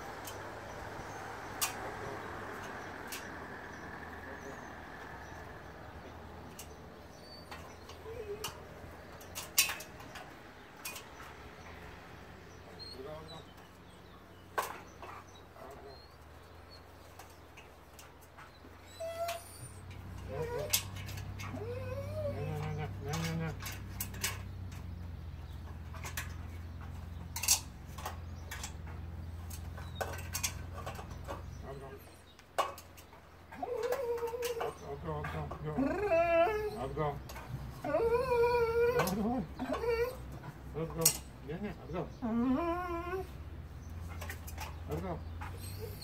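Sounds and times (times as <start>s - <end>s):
dog claws clicking on metal ladder: 7.4s - 11.8s, 17.0s - 31.7s.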